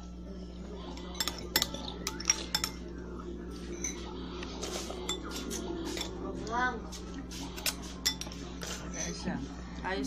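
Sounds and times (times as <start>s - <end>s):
cutlery clinking and scraping plate: 0.8s - 2.9s, 3.5s - 9.2s.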